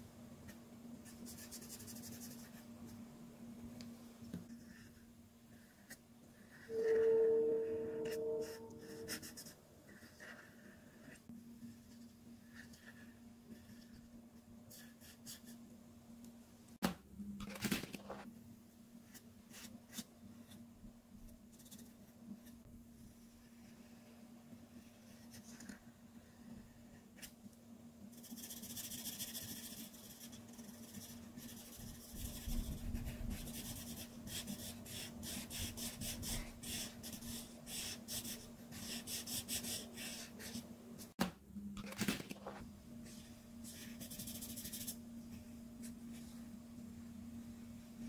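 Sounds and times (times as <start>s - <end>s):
steady low hum: 0.0s - 17.4s, 18.2s - 48.0s
marker scratching on paper: 8.0s - 11.2s, 28.1s - 40.6s, 43.6s - 45.0s.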